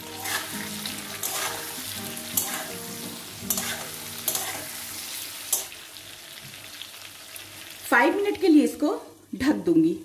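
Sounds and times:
spatula scraping pan: 0:00.0 - 0:04.9
oil sizzling: 0:00.0 - 0:09.3.

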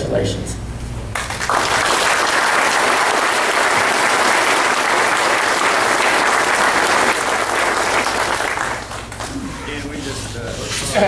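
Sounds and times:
crowd applauding: 0:01.1 - 0:09.5.

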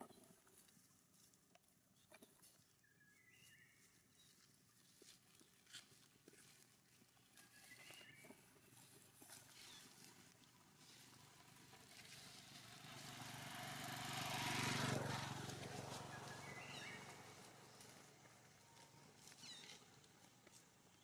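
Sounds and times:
vehicle passing by: 0:10.9 - 0:20.0.

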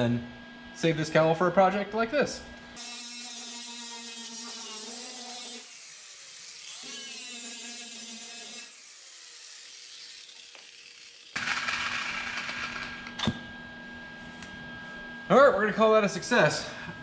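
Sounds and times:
angle grinder grinding steel: 0:02.8 - 0:13.0.

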